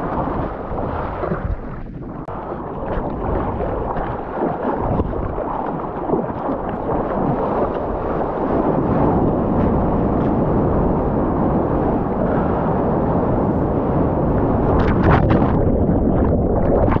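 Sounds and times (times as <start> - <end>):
crackling underwater bubbles: 0.0 - 17.0
rush of water and wind: 0.0 - 17.0.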